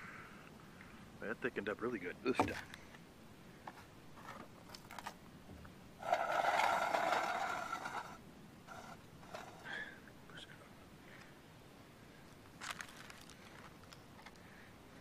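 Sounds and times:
metal scraping across metal plate: 0:06.0 - 0:09.7.

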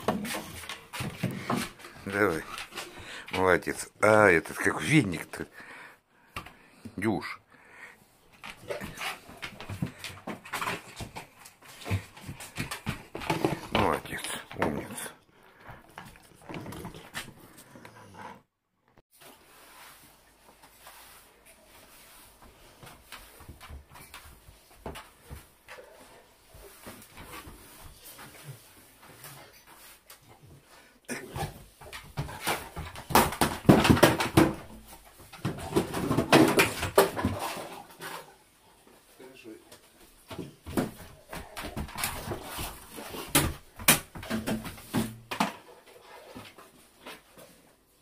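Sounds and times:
plastic dustpan clattering: 0:32.1 - 0:37.9.

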